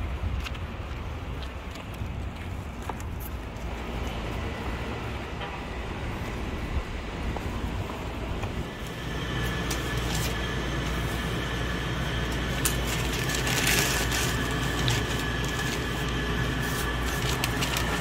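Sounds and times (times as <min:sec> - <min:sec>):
low mechanical hum: 0:00.0 - 0:18.0
faint high whine: 0:03.8 - 0:18.0.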